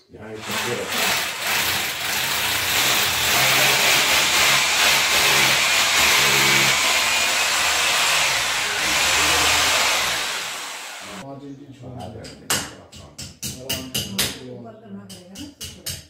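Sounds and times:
electric drill boring into tile: 0:00.3 - 0:11.2.

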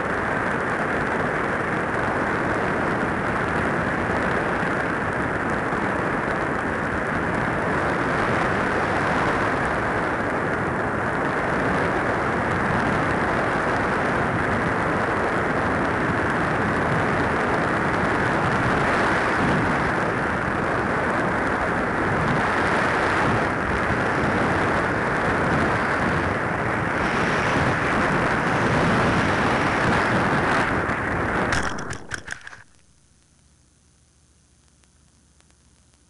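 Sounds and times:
glider knocking and scraping in grass: 0:31.5 - 0:32.8.

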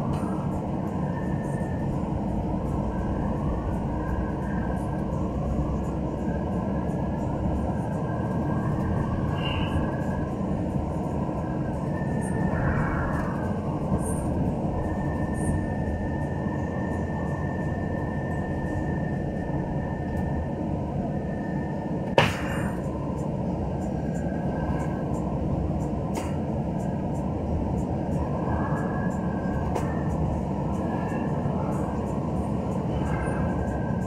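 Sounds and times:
road and engine noise inside vehicle: 0:00.0 - 0:34.0.

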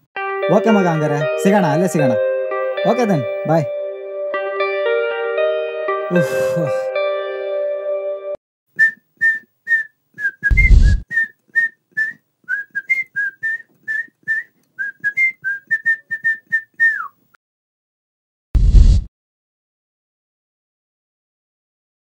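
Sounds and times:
person whistling a tune: 0:08.8 - 0:17.2
loud dull thump: 0:10.5 - 0:11.0
short burst of noise: 0:18.6 - 0:19.1.

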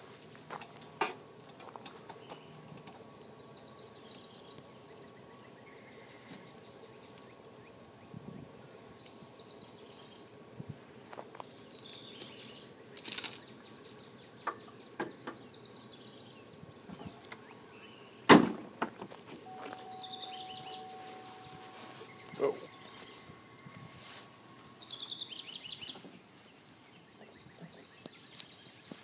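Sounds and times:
faint birds chirping: 0:00.0 - 0:18.3, 0:19.3 - 0:29.0
chain clinking and rattling: 0:11.8 - 0:14.1.

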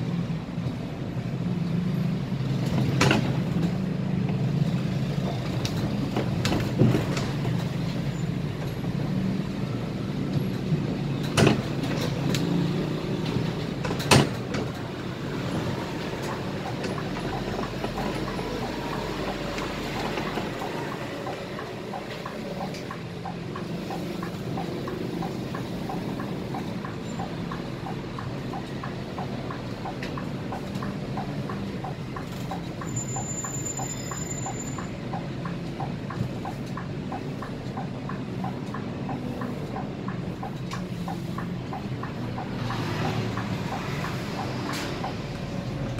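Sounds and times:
bus engine hum: 0:00.0 - 0:45.9
road noise: 0:00.0 - 0:45.9.

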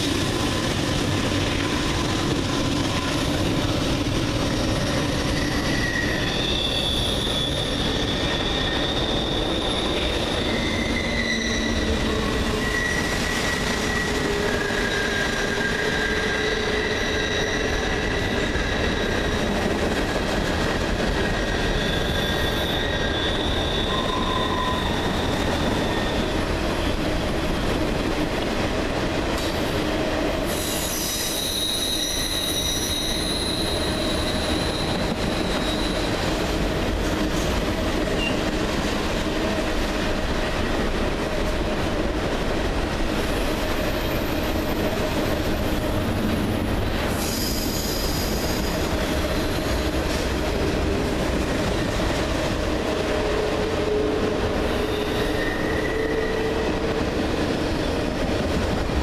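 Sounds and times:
train wheels rumbling on rail: 0:00.0 - 0:59.0
high-pitched wheel squeals: 0:05.2 - 0:19.4, 0:21.4 - 0:26.5, 0:30.5 - 0:36.3, 0:47.1 - 0:49.8, 0:53.9 - 0:56.8.

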